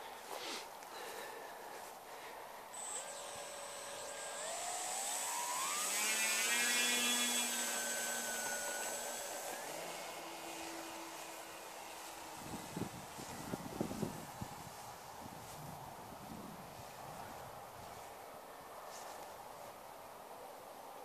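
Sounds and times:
thin high whine: 2.7s - 14.3s
model airplane motor whine: 2.7s - 14.5s.

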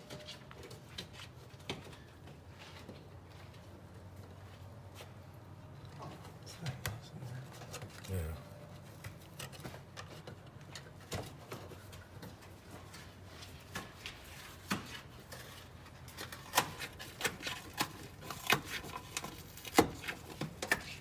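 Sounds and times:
faint low hum: 0.0s - 13.1s.

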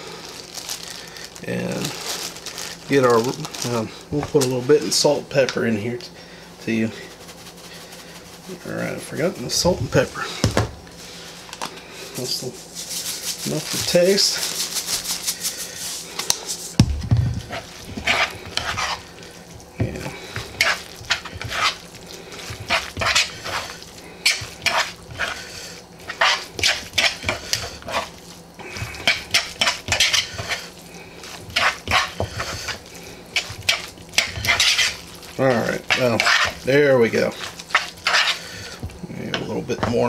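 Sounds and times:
metal spoon scraping plastic bowl: 33.4s - 35.0s, 35.6s - 38.4s.

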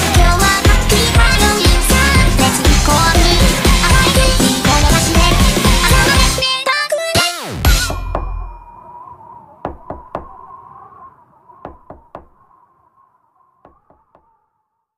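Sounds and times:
sharp knocks: 9.6s - 10.5s, 11.6s - 12.5s, 13.6s - 14.3s
low thump: 9.7s - 10.5s.

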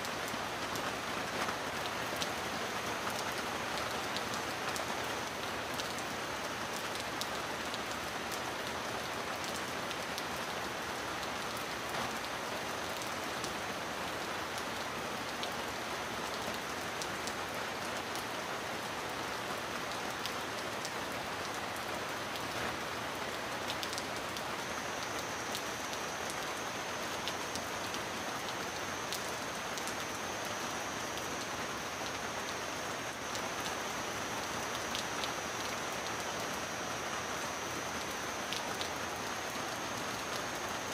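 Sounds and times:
heavy rain on a metal roof: 0.0s - 40.9s.

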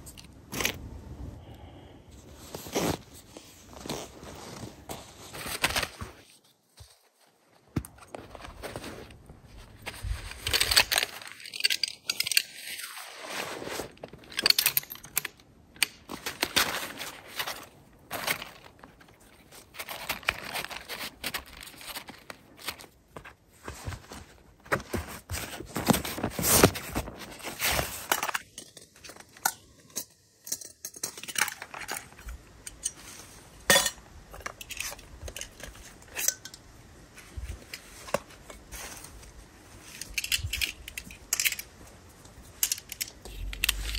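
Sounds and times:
nylon fabric rustling: 2.2s - 10.6s.

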